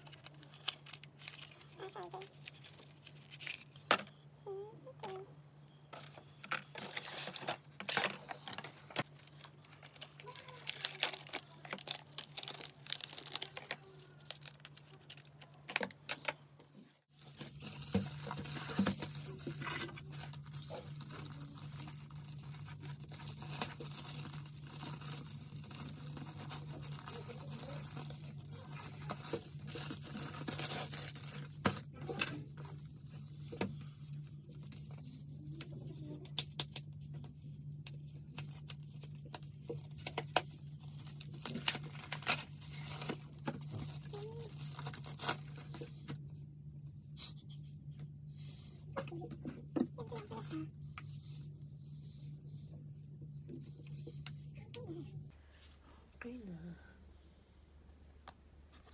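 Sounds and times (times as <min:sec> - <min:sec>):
plastic wrapping crinkling: 0:00.0 - 0:04.1, 0:05.9 - 0:16.3, 0:17.1 - 0:32.2, 0:38.3 - 0:46.0
plastic bag tearing: 0:06.7 - 0:16.0, 0:17.2 - 0:32.2, 0:40.9 - 0:46.0.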